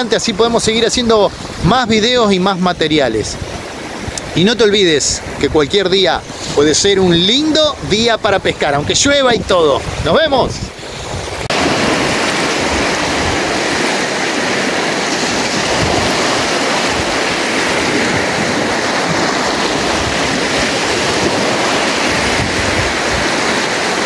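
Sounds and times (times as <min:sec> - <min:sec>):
stream water rushing: 0:00.0 - 0:24.0.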